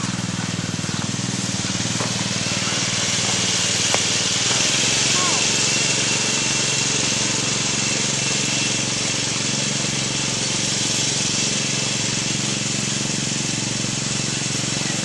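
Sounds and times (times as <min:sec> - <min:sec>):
even hiss: 0:00.0 - 0:13.0
small engine running: 0:00.0 - 0:15.0.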